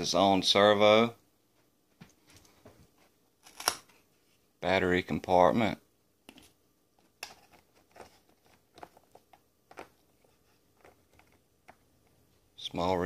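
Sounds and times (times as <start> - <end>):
fingers handling wires: 6.3 - 12.2.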